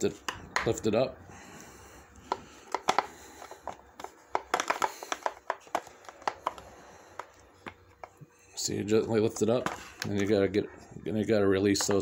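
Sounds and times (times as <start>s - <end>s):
hard plastic clicking and tapping: 2.2s - 8.2s.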